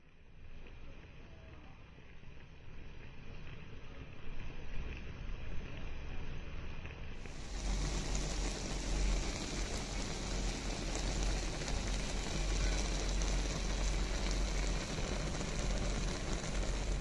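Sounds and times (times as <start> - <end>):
broth boiling in a pot: 0.0 - 17.0.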